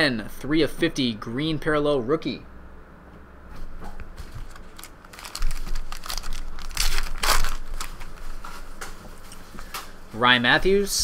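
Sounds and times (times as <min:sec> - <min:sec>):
plastic wrapper crinkling and tearing: 0:04.2 - 0:08.6.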